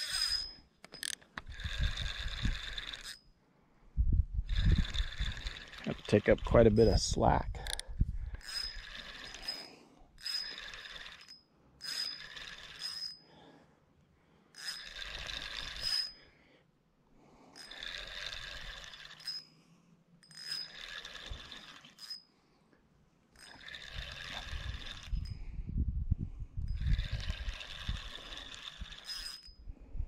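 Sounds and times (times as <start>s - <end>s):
fishing reel whirring: 0.0s - 3.3s, 4.4s - 7.0s, 7.6s - 13.5s, 14.5s - 16.2s, 17.4s - 19.6s, 20.2s - 22.3s, 23.4s - 25.5s, 26.6s - 29.6s.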